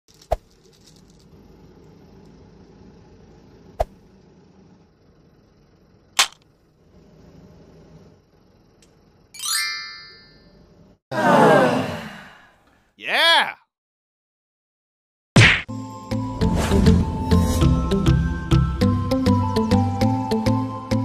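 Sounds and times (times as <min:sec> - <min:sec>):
low background hum: 0:00.1 - 0:11.8
bright ringing chime: 0:09.4 - 0:10.5.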